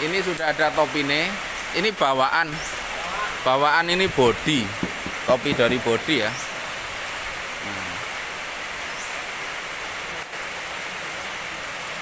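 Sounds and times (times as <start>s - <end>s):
steady background hiss: 0.0s - 12.0s
faint voice murmur: 7.6s - 8.0s.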